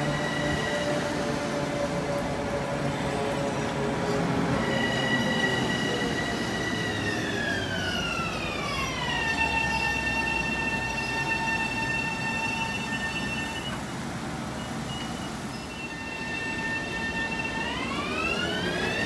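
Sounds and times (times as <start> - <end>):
electric train motor whining: 15.9 - 19.0.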